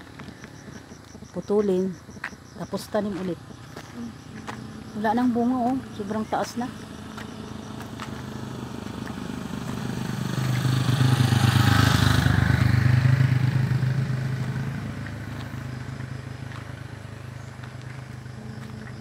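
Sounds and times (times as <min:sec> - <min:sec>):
vehicle engine passing by: 0:05.7 - 0:19.0.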